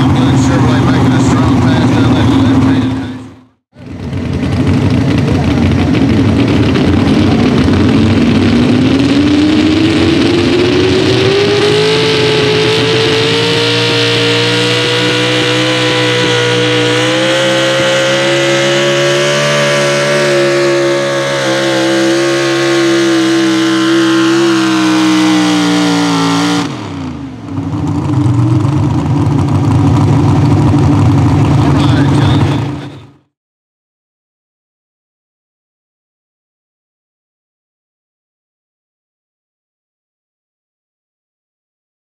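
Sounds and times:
truck engine revving: 0.0s - 33.3s.

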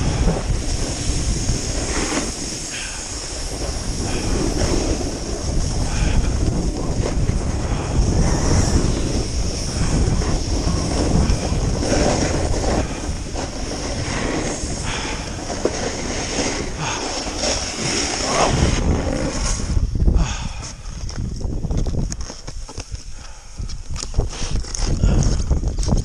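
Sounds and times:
snowboard scraping on packed snow: 0.0s - 19.9s, 24.2s - 25.2s
wind rushing over microphone: 0.0s - 26.0s.

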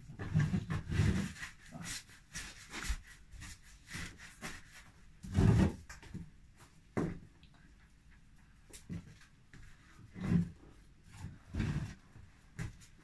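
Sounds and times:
hands rubbing bread dough: 0.2s - 5.2s.

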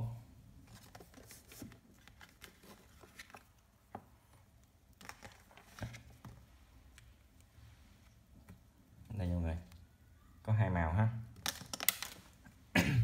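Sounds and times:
hands handling binoculars: 0.6s - 8.9s.

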